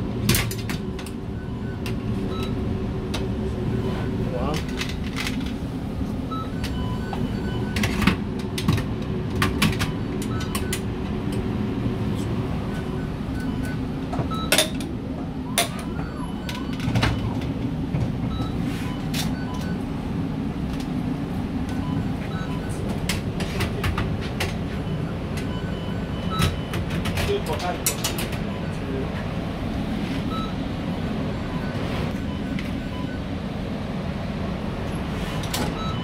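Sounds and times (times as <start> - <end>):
short electronic beeps: 30.3 - 33.2.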